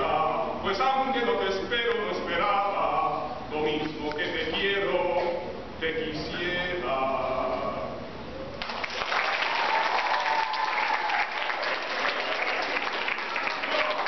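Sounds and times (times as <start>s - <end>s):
audience applause: 8.6s - 14.0s.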